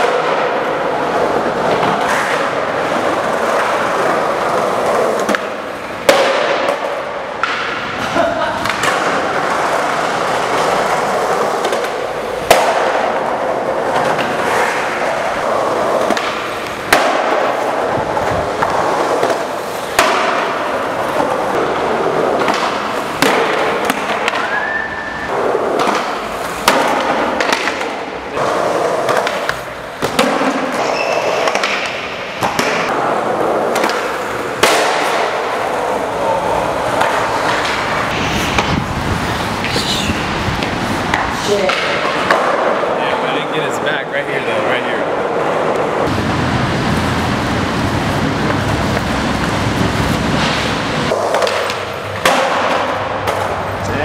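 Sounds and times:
skateboard wheels rolling on tiles: 0.0 - 43.8, 45.0 - 54.0
skateboard popping and slapping down: 8.6 - 24.7, 25.3 - 35.7, 40.6 - 42.8, 50.1 - 53.6.

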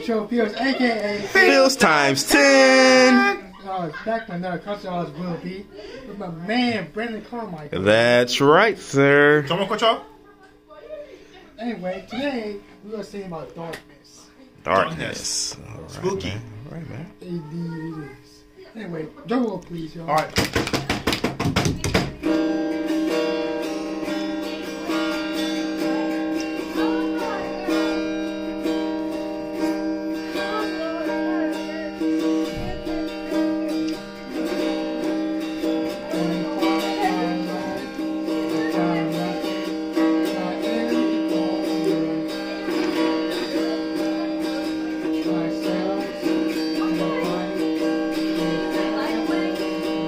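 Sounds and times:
slow electric guitar: 22.2 - 50.0.

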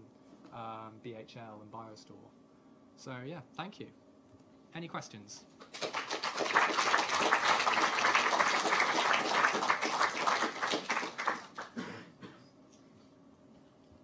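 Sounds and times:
audience applause: 5.7 - 11.8.

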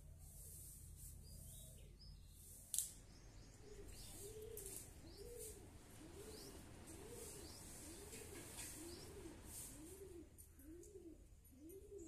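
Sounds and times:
small birds chirping faintly: 0.0 - 12.0
dove cooing: 3.6 - 12.0.

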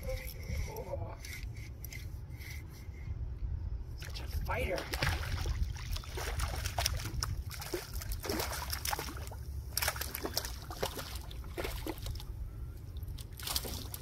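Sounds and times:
fish thrashing and splashing: 4.8 - 12.3.

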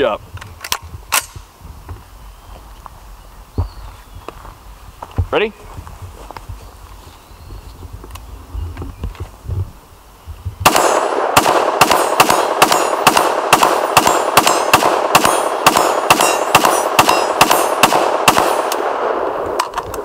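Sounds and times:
rifle firing: 10.6 - 20.0
steel target ringing: 15.2 - 17.8.

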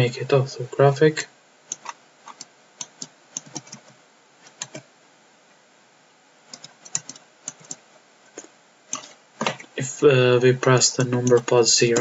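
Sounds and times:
keyboard and mouse clicks: 1.7 - 4.9, 6.5 - 9.7, 11.0 - 12.0.

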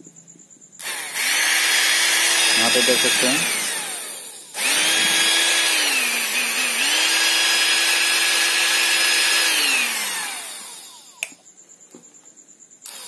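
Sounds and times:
electric motor whining: 0.8 - 11.1.

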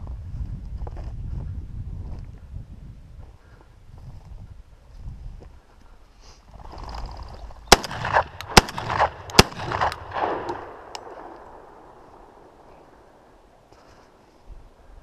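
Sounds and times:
shotgun shots with ringing echoes: 7.7 - 13.4.

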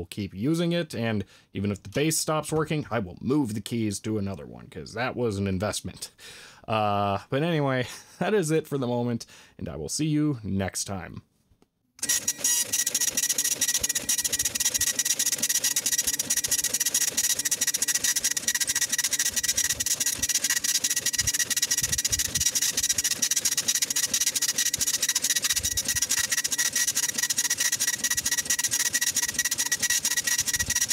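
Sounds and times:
impact printer printing: 12.0 - 30.9.

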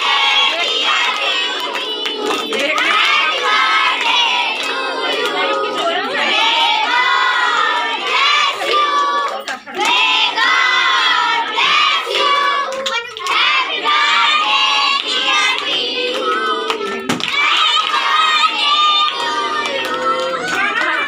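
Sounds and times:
children singing together: 0.0 - 21.0
hand clapping: 0.3 - 6.1, 7.4 - 10.0, 11.6 - 13.7, 14.9 - 21.0.

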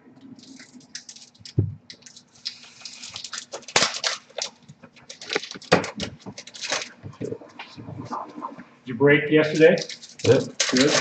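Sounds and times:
card packs crinkling and rustling: 0.4 - 7.0, 9.5 - 11.0
sharp snaps and knocks: 0.5 - 7.3, 9.8 - 11.0.

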